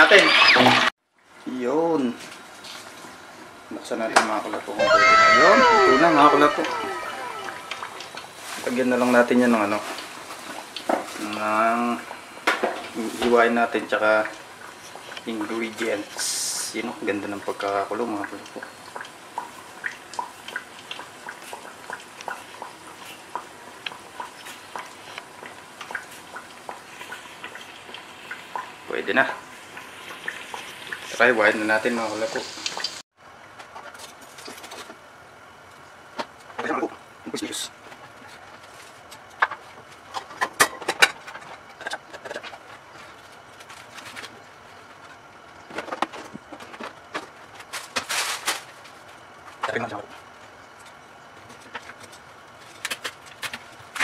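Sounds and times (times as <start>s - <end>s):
faint oil sizzle: 1.4s - 33.0s
hot oil popping: 7.7s - 33.0s.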